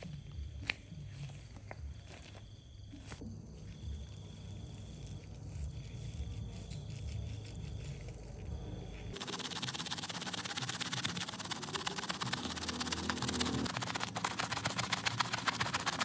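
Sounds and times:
wet rug being scrubbed: 3.9 - 16.0.

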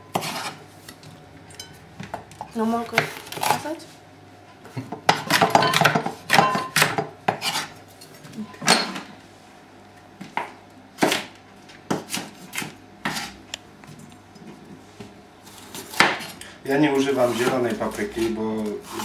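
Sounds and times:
knife chopping on wooden board: 4.8 - 7.7, 11.9 - 13.3, 15.7 - 16.3.

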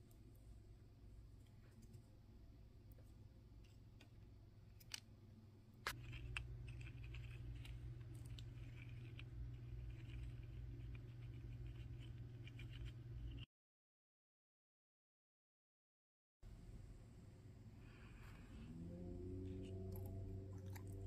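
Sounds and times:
low steady hum: 0.0 - 13.5, 16.4 - 21.0
paper parts scratching and rustling: 5.8 - 13.5.

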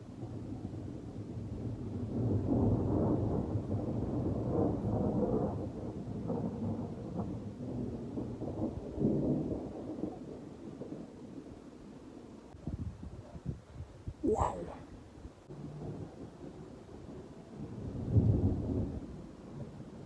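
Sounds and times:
rolling thunder: 0.2 - 11.3, 15.6 - 20.0.

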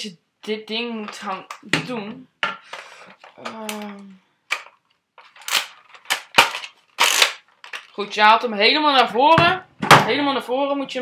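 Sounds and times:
plastic toy blaster clicking: 5.4 - 7.9.

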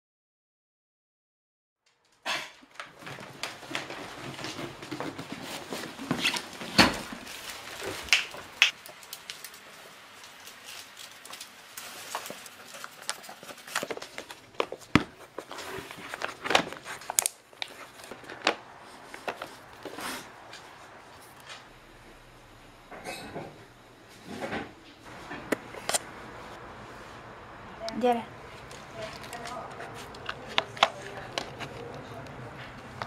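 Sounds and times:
cardboard box being unpacked: 10.3 - 20.3.

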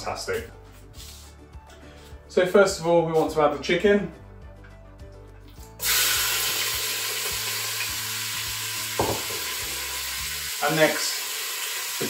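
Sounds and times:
chicken sizzling in hot oil: 5.8 - 12.0.

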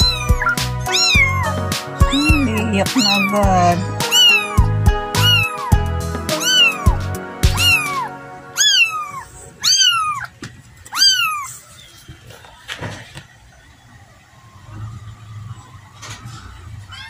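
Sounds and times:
kitten mewing: 0.0 - 11.7.

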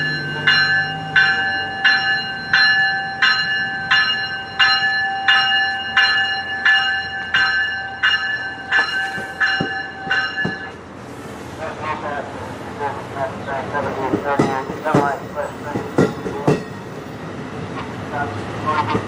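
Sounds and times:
train warning bell ringing: 0.0 - 10.9, 13.8 - 17.2.

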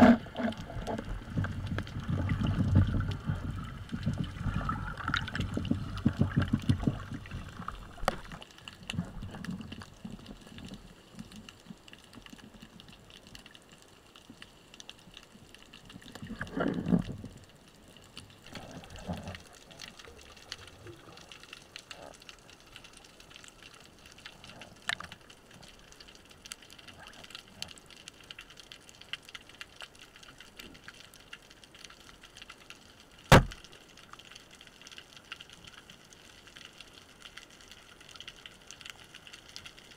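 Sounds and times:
air bubbles gurgling underwater: 0.0 - 11.4, 15.9 - 17.6
faint crackling ticks: 0.0 - 39.9.

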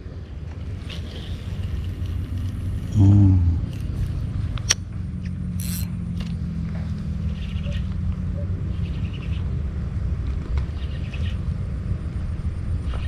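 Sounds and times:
engine low hum: 0.0 - 13.0
short vocal sound: 2.9 - 3.8.

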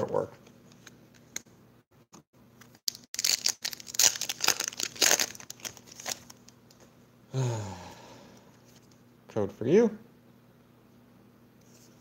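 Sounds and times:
foil wrapper crinkling and tearing: 2.7 - 6.5.

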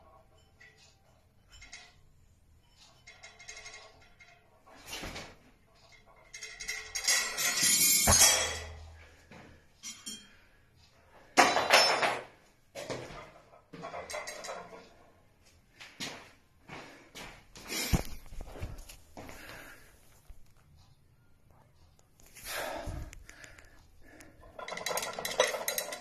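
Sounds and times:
weight plates clanking: 0.0 - 9.0, 11.3 - 15.0, 23.4 - 26.0.

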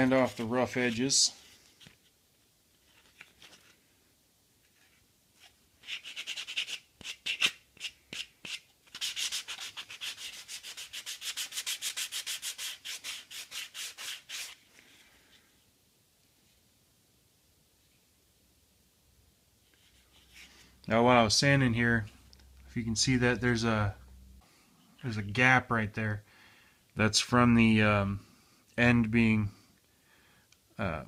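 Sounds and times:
hand sanding block strokes: 5.8 - 14.6.

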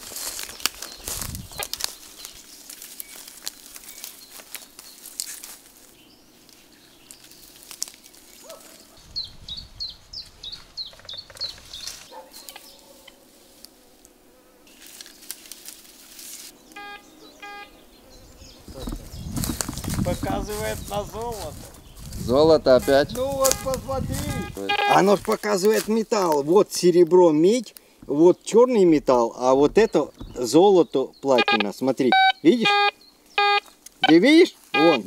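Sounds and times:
rustling through dry undergrowth: 0.0 - 16.8, 18.2 - 30.9, 33.0 - 34.8
metal detector beeps: 16.8 - 17.7, 22.8 - 25.1, 31.4 - 34.2, 34.8 - 35.0
short high chirps: 23.6 - 25.0.

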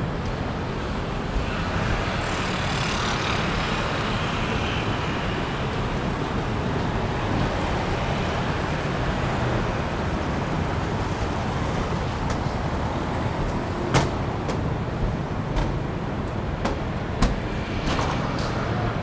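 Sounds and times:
city road traffic: 0.0 - 19.0
sharp knocks: 16.6 - 18.6.

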